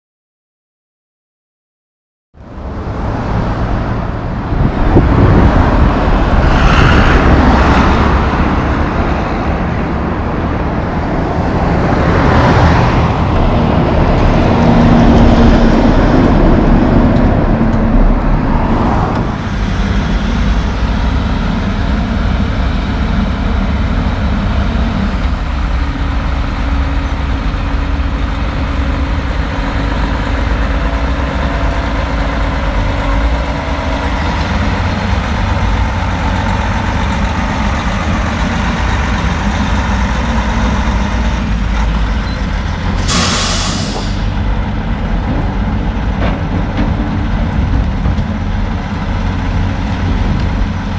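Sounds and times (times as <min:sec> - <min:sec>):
heavy diesel engines running: 0:02.4 - 0:50.9
truck passing: 0:02.4 - 0:50.9
short loud hiss: 0:43.0 - 0:44.3.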